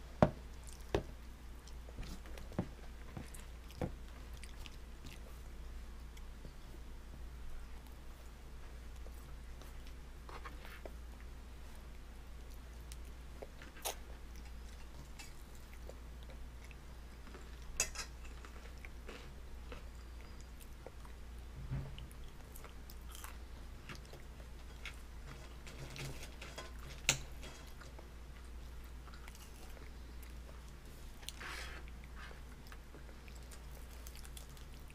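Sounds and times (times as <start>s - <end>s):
steady low hum: 0.0s - 34.9s
baby chewing and smacking: 0.3s - 5.5s, 27.7s - 34.9s.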